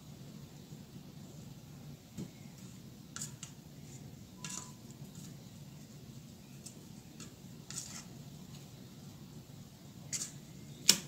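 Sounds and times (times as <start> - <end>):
steady low hum: 0.0 - 11.0
metal utensil scraping a bowl: 3.1 - 3.6, 4.4 - 5.4, 6.6 - 8.2.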